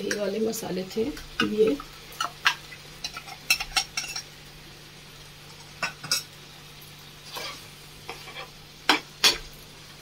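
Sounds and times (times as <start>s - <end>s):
utensil scraping pan: 7.2s - 9.5s.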